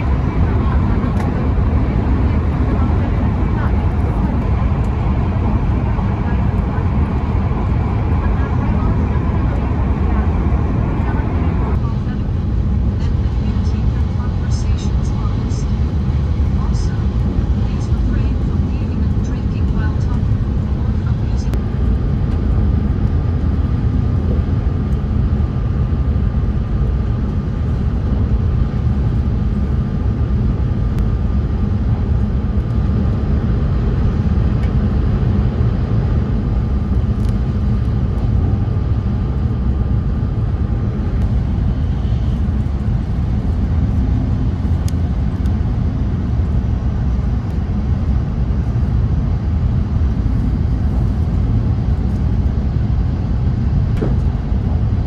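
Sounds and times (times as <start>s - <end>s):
faint steady whine: 0.0s - 55.0s
train cabin rumble: 54.0s - 54.5s.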